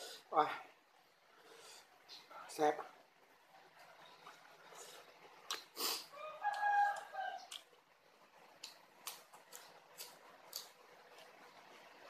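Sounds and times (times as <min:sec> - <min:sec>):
crunchy vegetable chewing: 0:08.3 - 0:12.0.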